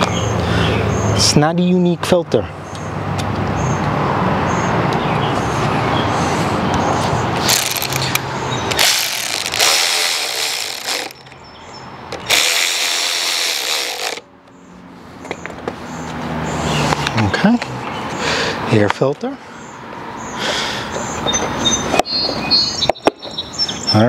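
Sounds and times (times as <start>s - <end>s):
cordless drill whirring: 7.4s - 11.2s, 12.2s - 14.2s.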